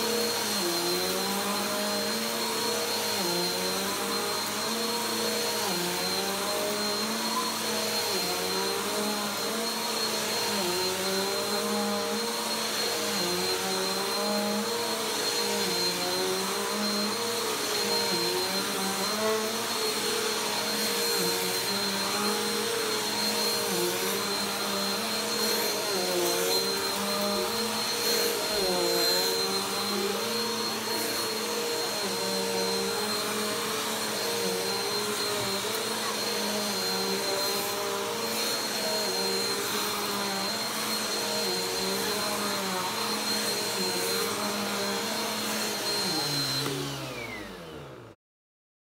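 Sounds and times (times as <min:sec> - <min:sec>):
vacuum cleaner running on carpet: 0:00.0 - 0:48.2.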